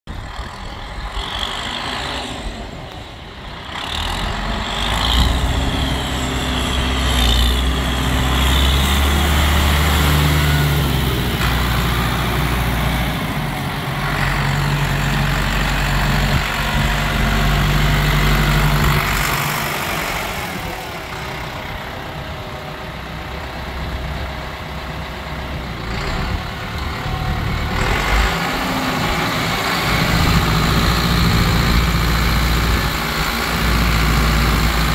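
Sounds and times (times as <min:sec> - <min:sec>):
tractor diesel engine running: 0:00.1 - 0:34.9.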